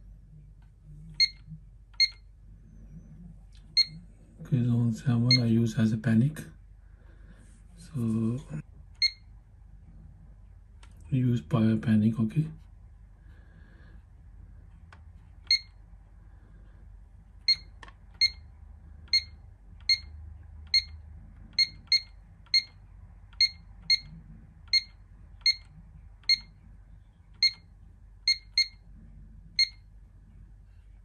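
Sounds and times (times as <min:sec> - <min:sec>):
alarm keypad beeps: 0:01.2 - 0:01.4, 0:02.0 - 0:02.2, 0:03.8 - 0:04.0, 0:15.5 - 0:15.7, 0:17.5 - 0:18.4, 0:19.1 - 0:20.1, 0:20.7 - 0:21.0, 0:21.6 - 0:22.8, 0:23.4 - 0:24.1, 0:24.7 - 0:26.5, 0:27.4 - 0:28.8, 0:29.6 - 0:29.8.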